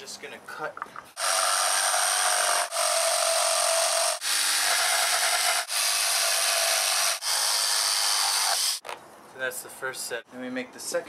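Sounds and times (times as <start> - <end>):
jigsaw cutting wood: 1.2 - 8.8.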